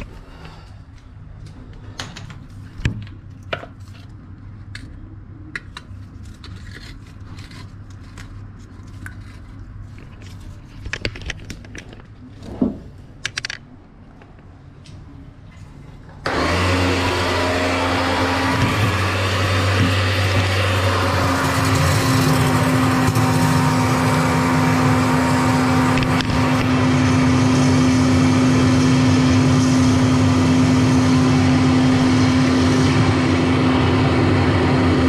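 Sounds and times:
drain-cleaning machine humming: 16.2s - 35.0s.

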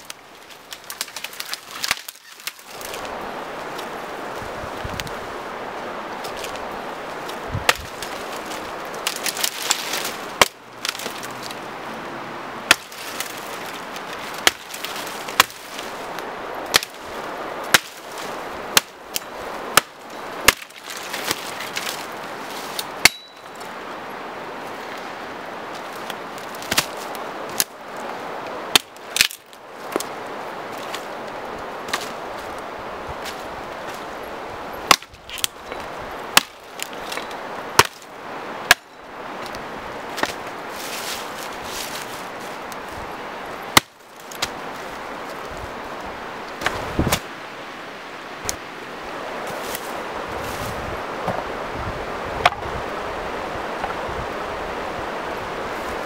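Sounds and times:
hatchet chopping dead branches: 0.6s - 3.1s, 7.2s - 11.6s, 12.6s - 17.1s, 17.7s - 23.8s, 25.8s - 27.8s, 28.4s - 34.1s, 34.8s - 43.0s, 43.7s - 44.8s, 46.6s - 47.3s.

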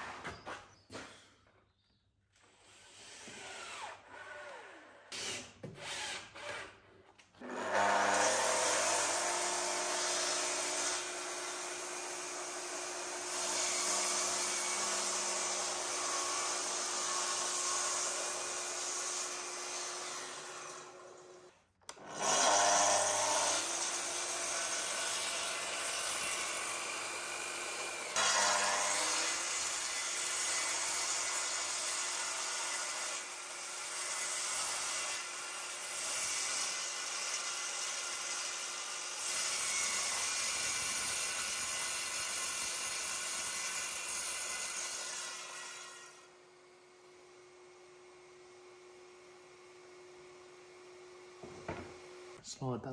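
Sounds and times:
saw blades cutting wood: 2.4s - 46.4s.

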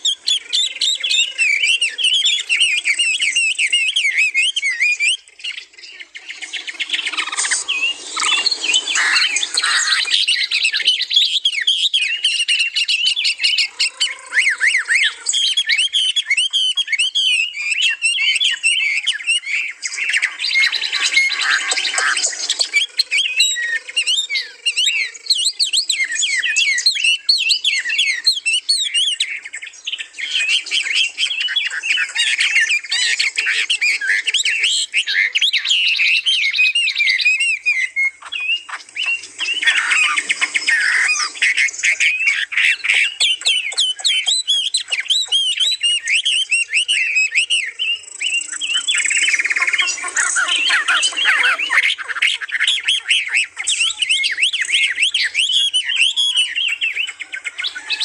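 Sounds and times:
songbirds singing and chirping: 0.0s - 58.0s.

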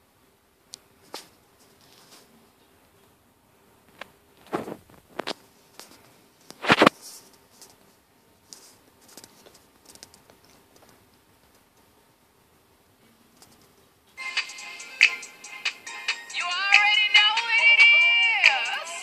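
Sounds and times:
rustling and scraping: 1.0s - 2.4s, 3.9s - 11.6s.

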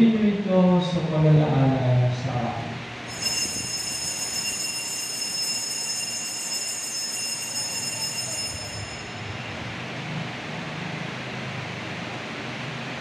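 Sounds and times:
altar bells ringing: 3.0s - 9.7s.

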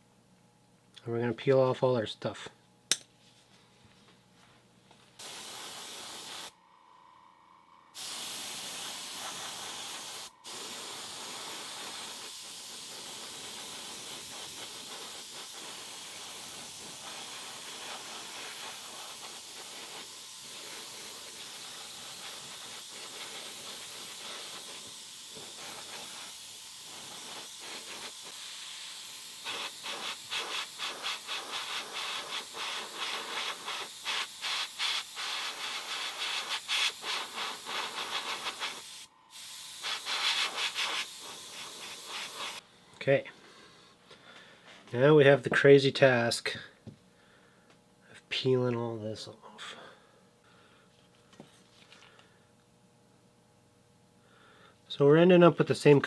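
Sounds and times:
airbrush spraying hiss: 5.2s - 6.6s, 8.0s - 42.6s.

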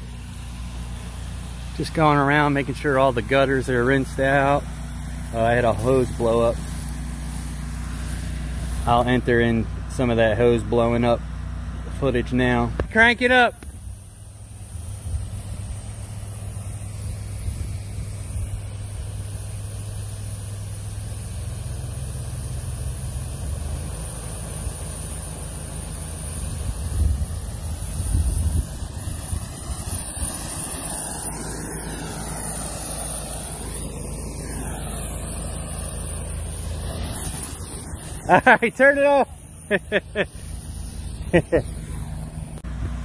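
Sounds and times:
water hissing from burst hose: 0.0s - 11.2s, 11.8s - 43.0s
pressure washer engine drone: 0.0s - 43.0s.

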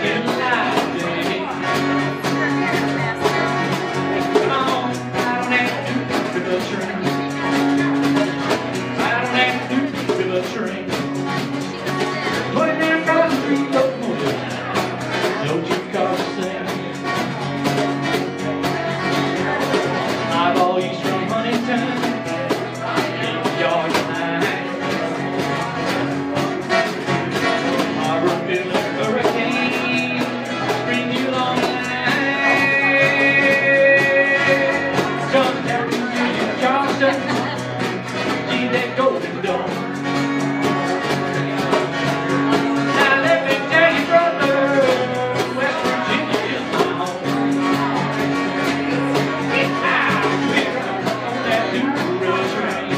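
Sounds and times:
acoustic guitar strummed: 0.0s - 52.9s.

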